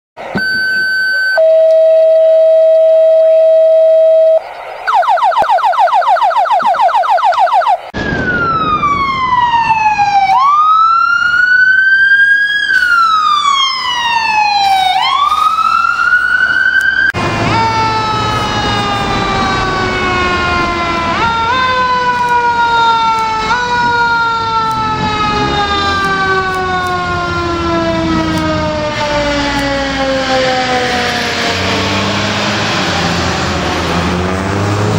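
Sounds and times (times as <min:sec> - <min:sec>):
steady electronic beep: 0:00.2 - 0:05.3
emergency vehicle sirens: 0:00.2 - 0:34.9
mechanical siren winding down: 0:00.2 - 0:34.9
truck engine: 0:07.8 - 0:34.9.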